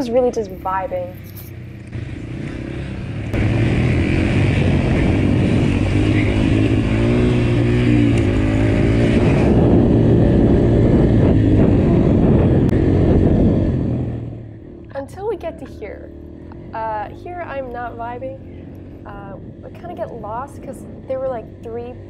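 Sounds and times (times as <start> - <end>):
dirt bike engine revving: 1.5 - 22.0.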